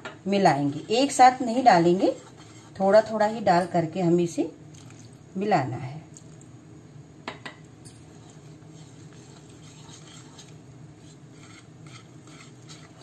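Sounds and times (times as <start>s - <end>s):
whisk stirring batter: 0.6s - 3.3s, 8.0s - 13.0s.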